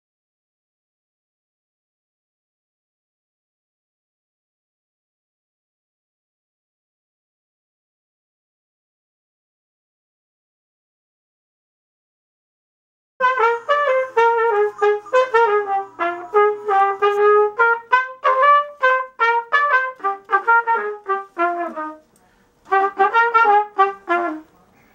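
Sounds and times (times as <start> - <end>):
solo trumpet melody: 13.2 - 24.7.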